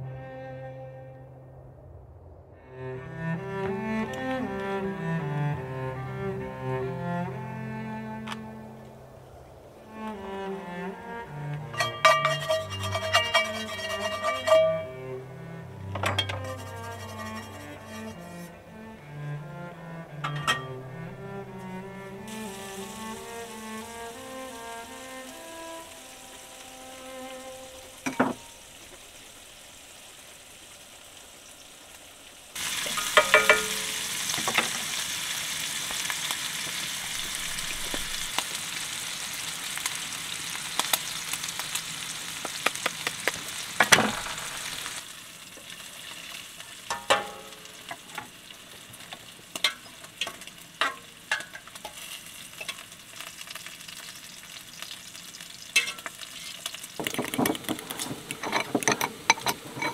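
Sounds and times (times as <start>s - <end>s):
food sizzling in a frying pan: 11.7s - 15.1s, 22.3s - 59.9s
fork scraping a ceramic bowl: 11.8s - 14.9s, 16.4s - 18.3s.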